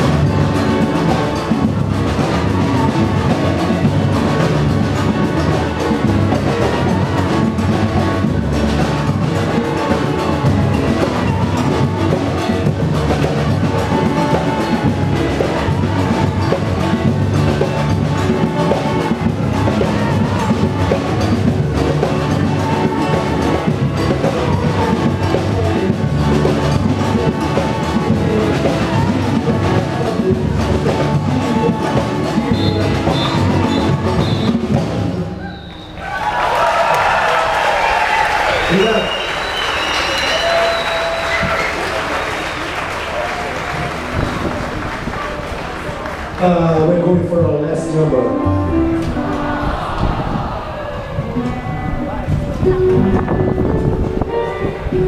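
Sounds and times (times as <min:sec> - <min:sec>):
bass drums beating: 0:00.0 - 0:47.4
live band playing: 0:00.0 - 0:55.0.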